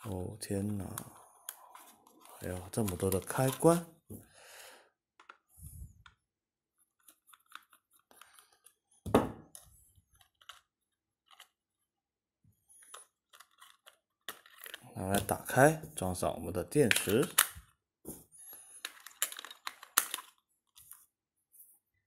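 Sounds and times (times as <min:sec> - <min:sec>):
screwdriver clicking and scraping plastic: 0:12.8 - 0:15.3, 0:18.8 - 0:20.8.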